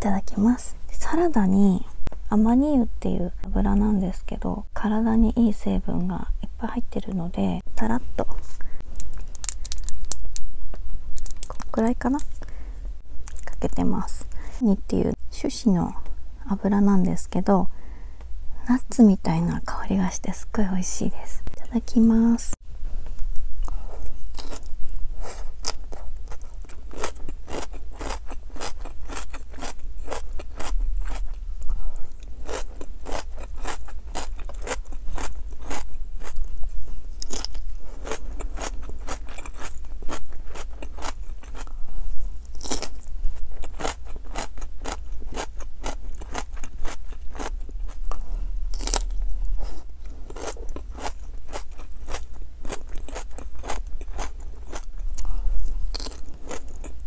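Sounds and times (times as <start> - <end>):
chewing crisp cabbage: 8.9 - 10.5, 11.2 - 12.4, 23.1 - 57.0.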